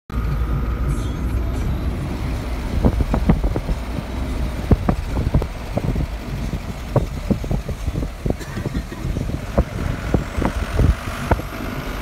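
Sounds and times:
vehicle engine and road rumble: 0.1s - 12.0s.

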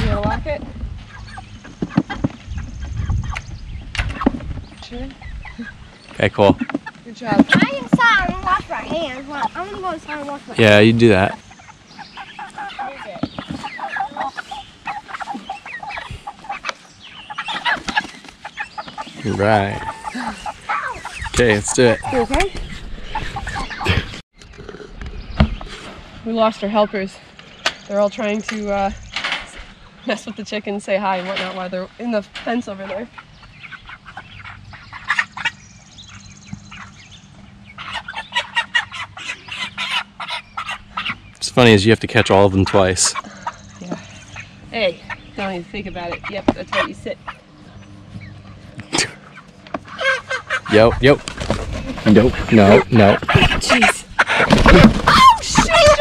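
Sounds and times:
chickens making rapid calls: 0.0s - 24.2s, 25.1s - 56.0s
wings flapping: 17.4s - 24.2s, 48.1s - 56.0s.

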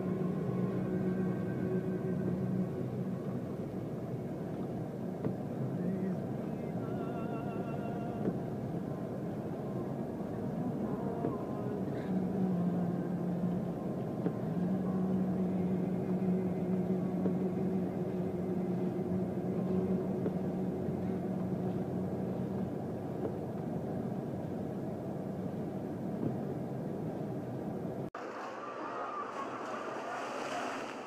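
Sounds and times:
steady low hum: 0.0s - 30.0s
surf breaking against sea wall: 28.2s - 31.0s.

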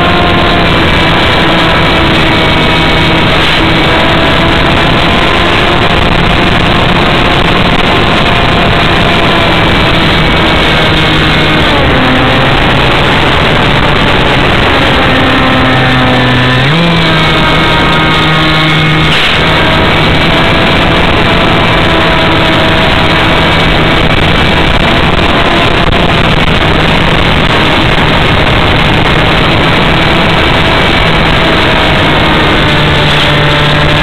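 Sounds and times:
wind rush on microphone: 0.0s - 34.0s.

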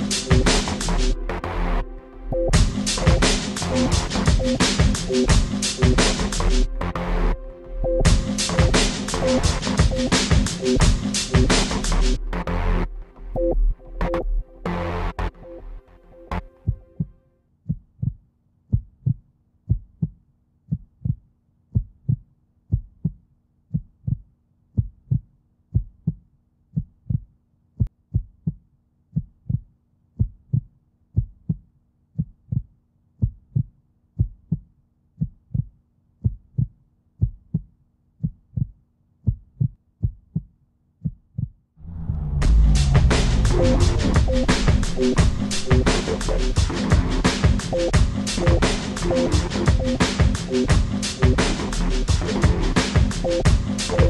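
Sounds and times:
heartbeat thumps: 16.6s - 17.1s, 17.7s - 26.2s, 26.8s - 28.6s, 29.2s - 31.6s, 32.2s - 48.6s, 52.1s - 54.0s.

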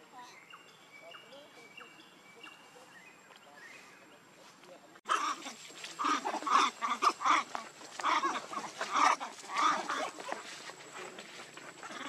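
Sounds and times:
macaques calling: 5.1s - 12.0s.

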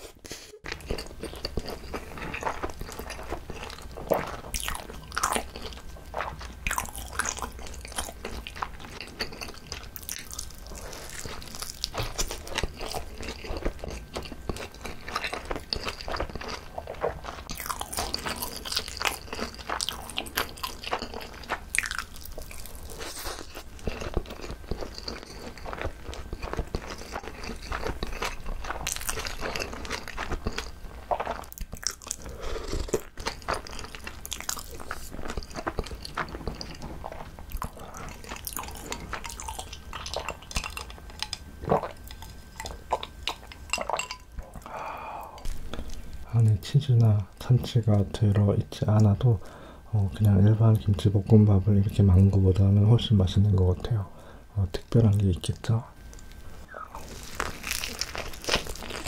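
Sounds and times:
chewing with wet mouth clicks: 0.6s - 44.7s.

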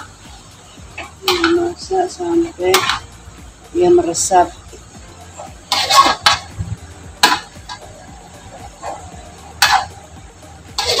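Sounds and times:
metal spatula scraping a wok: 0.0s - 3.1s, 4.2s - 6.6s, 7.2s - 10.1s, 10.7s - 11.0s.

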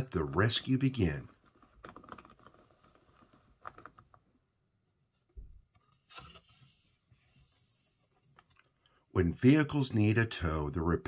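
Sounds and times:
thick page turning: 0.2s - 4.2s, 5.8s - 8.7s.

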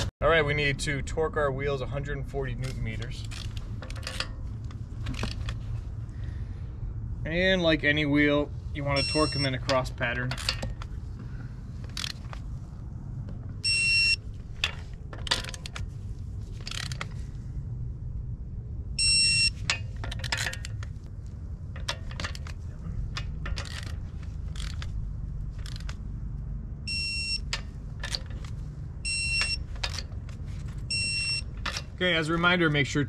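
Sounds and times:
torque wrench beeping: 9.0s - 9.6s, 13.6s - 14.2s, 19.0s - 19.8s, 26.9s - 27.6s, 29.0s - 30.0s, 30.8s - 31.9s
wrench clicking on bolts: 11.9s - 12.4s, 16.6s - 17.2s, 21.8s - 25.0s, 25.6s - 26.0s.

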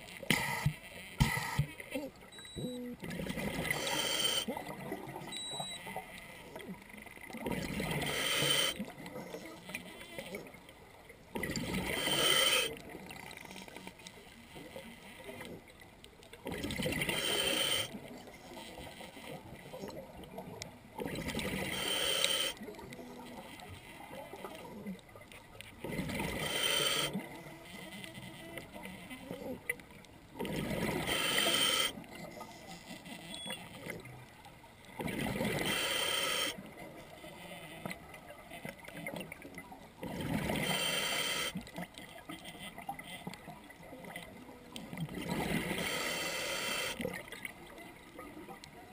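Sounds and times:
diver inhaling through regulator: 3.7s - 4.5s, 7.9s - 8.8s, 11.8s - 12.8s, 26.3s - 27.1s, 31.0s - 32.0s, 35.6s - 36.6s, 40.6s - 41.6s, 45.6s - 47.0s.

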